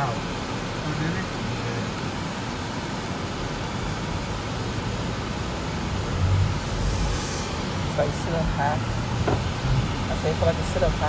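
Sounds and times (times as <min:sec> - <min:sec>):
car engine hum: 0:00.0 - 0:11.0
car cabin hiss: 0:06.6 - 0:08.2.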